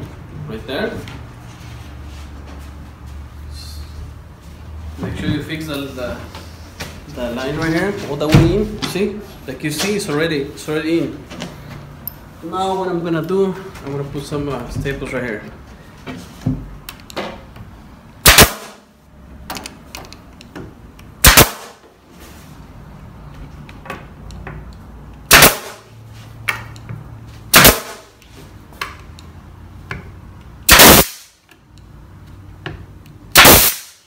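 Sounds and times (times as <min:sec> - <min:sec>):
pneumatic stapler shots: 0:18.2 - 0:18.8, 0:21.2 - 0:21.8, 0:25.3 - 0:25.9, 0:27.5 - 0:28.1, 0:30.7 - 0:31.4, 0:33.3 - 0:34.0.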